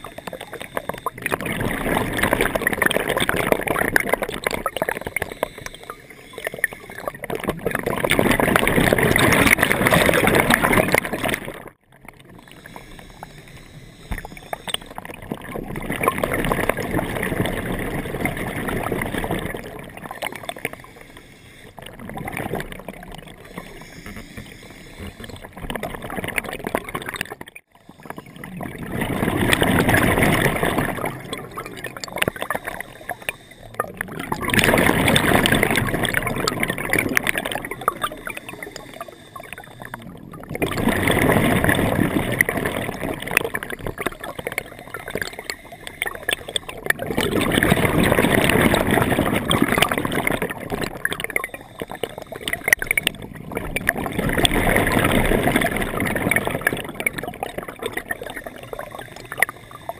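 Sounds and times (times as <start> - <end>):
diver inhaling through regulator: 0.0 - 7.2, 12.3 - 15.1, 20.4 - 22.0, 23.3 - 25.7, 29.5 - 40.2, 44.2 - 46.8, 51.4 - 53.2, 58.5 - 59.9
diver exhaling bubbles: 0.0 - 59.9.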